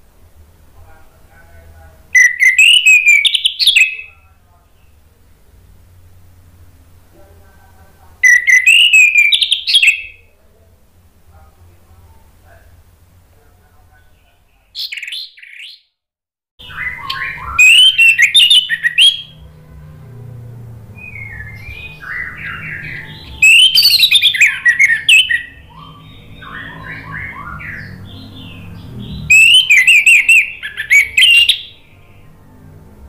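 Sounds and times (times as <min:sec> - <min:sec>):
thrush singing whistled phrases: 0:02.2 - 0:04.1, 0:08.2 - 0:10.2, 0:16.6 - 0:19.4, 0:20.9 - 0:32.0.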